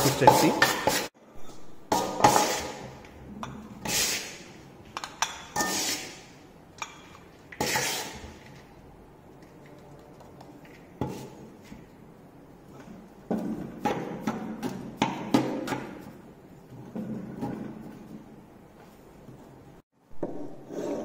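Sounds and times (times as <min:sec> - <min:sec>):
paste scraping in metal pan: 0:02.0 - 0:03.0, 0:07.6 - 0:08.3.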